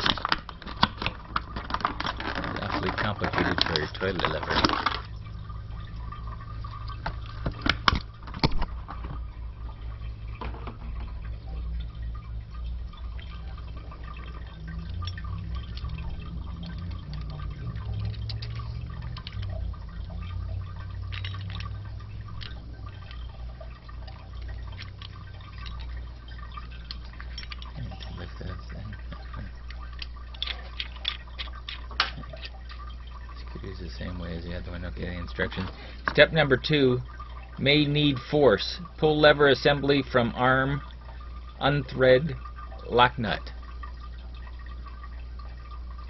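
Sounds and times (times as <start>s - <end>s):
toilet tank parts clicking: 0.0s - 5.1s, 6.9s - 9.2s, 14.2s - 19.6s, 20.2s - 23.3s, 26.8s - 28.2s, 29.2s - 32.8s
water dripping and trickling: 0.0s - 46.0s.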